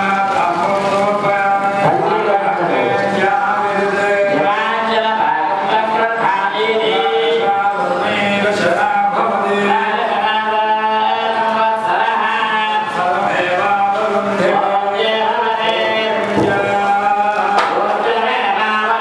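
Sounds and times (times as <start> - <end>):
voices singing devotional chant: 0.0 - 19.0.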